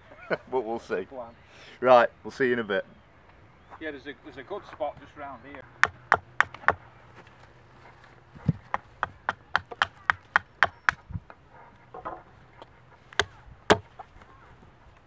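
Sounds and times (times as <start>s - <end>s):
hatchet chopping wood: 5.7s - 6.8s, 8.4s - 11.0s, 13.1s - 13.9s.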